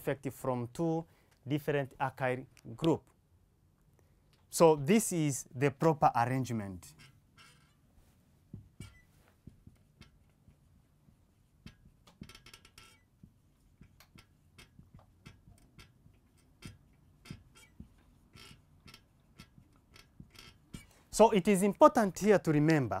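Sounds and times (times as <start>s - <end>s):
marker writing on whiteboard: 8.6s - 21.0s.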